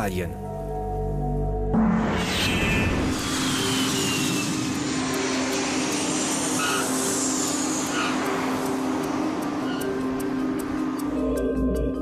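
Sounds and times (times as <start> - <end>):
jet airliner flying past: 1.9 - 10.8.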